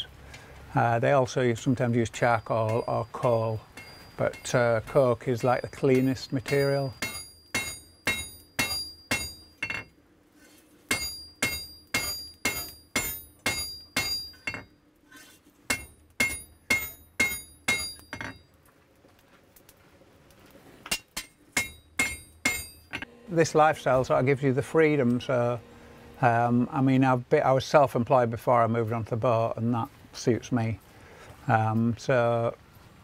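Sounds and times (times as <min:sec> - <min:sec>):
hammer ringing on anvil: 0:02.2 - 0:09.9, 0:10.9 - 0:14.7, 0:15.7 - 0:18.4, 0:20.9 - 0:24.0.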